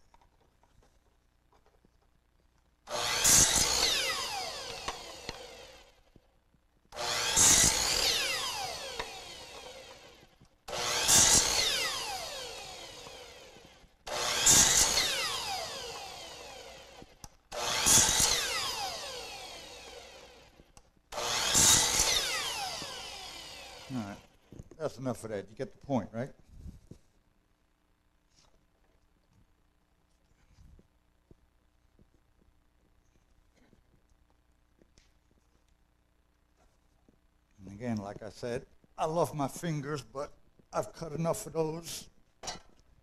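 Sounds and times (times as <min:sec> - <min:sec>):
saw blade winding down: 0:02.9 - 0:06.1, 0:06.9 - 0:24.4
chop saw cutting wood: 0:02.9 - 0:06.2, 0:06.9 - 0:24.4.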